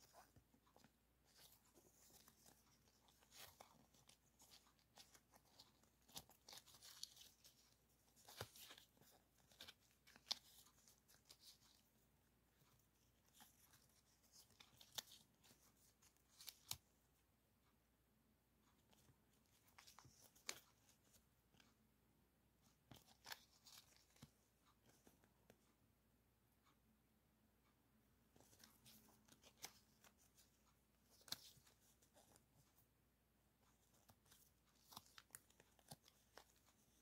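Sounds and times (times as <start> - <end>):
stickers crinkling and rustling: 0.0 - 16.8, 28.4 - 32.8, 33.6 - 37.0.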